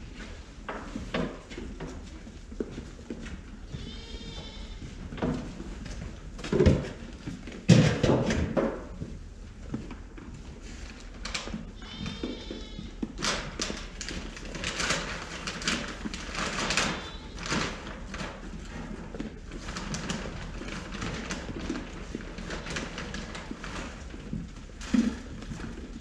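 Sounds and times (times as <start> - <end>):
feed bags rustling and scraping: 9.3 - 26.0
sheep bleating: 11.8 - 12.9.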